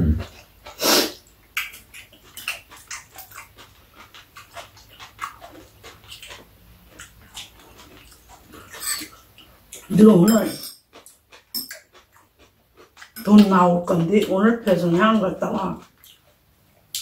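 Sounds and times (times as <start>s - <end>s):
chewing and lip-smacking: 0.2s - 10.0s, 10.8s - 17.0s
chopsticks clicking against bowls: 9.8s - 12.0s.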